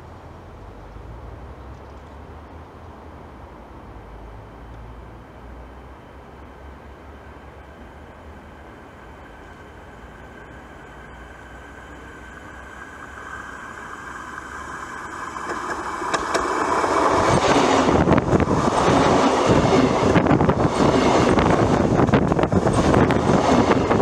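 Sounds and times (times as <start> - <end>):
electric train approaching: 0.0 - 24.0
train wheels rumbling and clattering: 6.6 - 24.0
sharp clicks over rail: 15.3 - 17.6.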